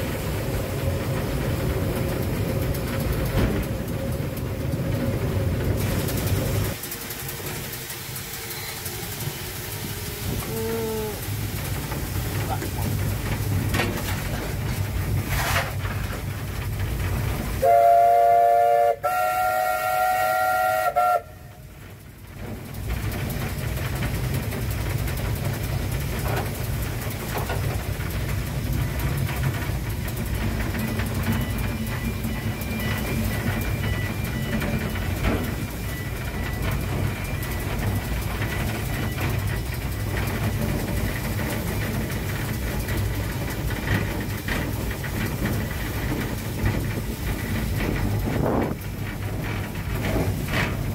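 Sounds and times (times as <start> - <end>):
train rumbling: 0.0 - 50.9
steam locomotive whistle: 17.6 - 21.6.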